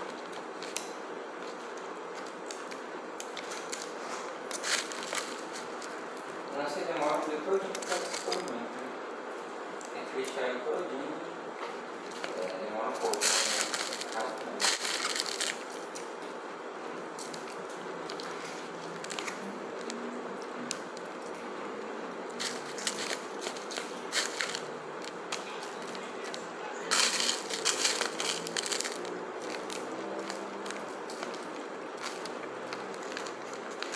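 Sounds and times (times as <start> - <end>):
foil crinkling and crackling: 0.0 - 8.9, 12.0 - 16.3, 17.0 - 21.5, 22.3 - 33.9
fork scraping foil tray: 26.9 - 29.0.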